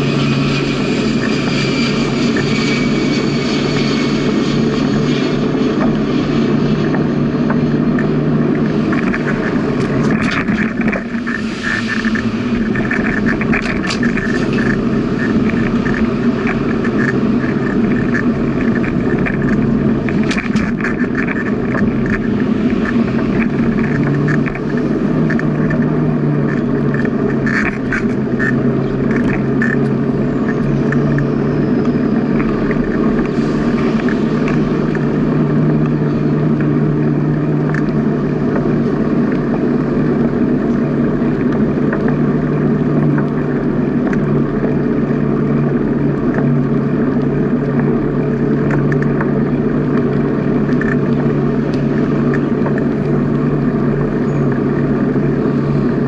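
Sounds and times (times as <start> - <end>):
bicycle tyre rumble: 0.0 - 56.0
constant low hum: 0.0 - 56.0
wind noise: 0.0 - 56.0
bicycle clicks and rattles: 8.0 - 55.4.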